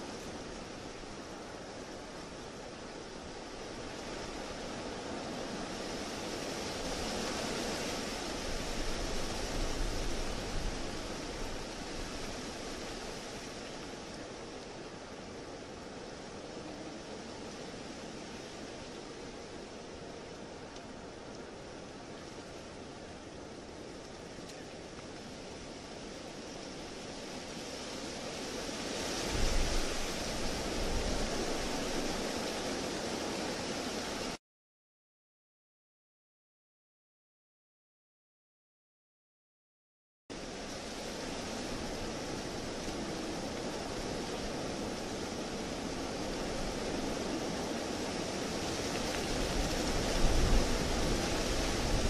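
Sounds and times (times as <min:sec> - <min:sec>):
strong wind blowing: 0:26.8 - 0:34.4, 0:40.4 - 0:52.0.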